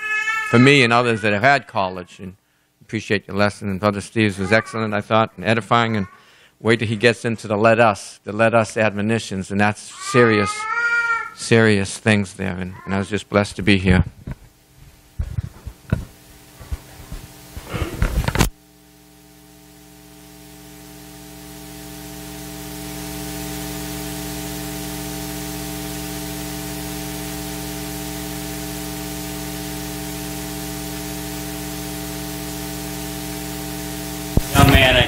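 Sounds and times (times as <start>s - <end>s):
mains hum: 0.0s - 35.0s
electrical hiss: 14.4s - 35.0s.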